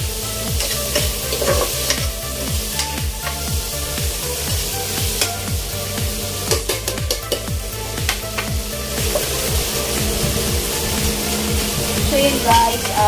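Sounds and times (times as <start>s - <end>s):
vegetables sizzling in oil: 0.0s - 13.0s
utensils scraping and knocking pot: 0.5s - 3.6s, 6.4s - 13.0s.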